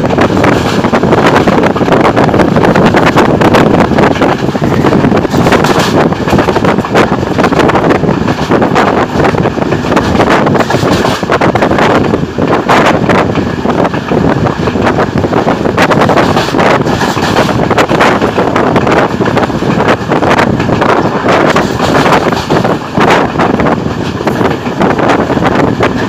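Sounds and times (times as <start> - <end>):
train running noise: 0.0 - 26.0
wind buffeting microphone: 0.0 - 26.0.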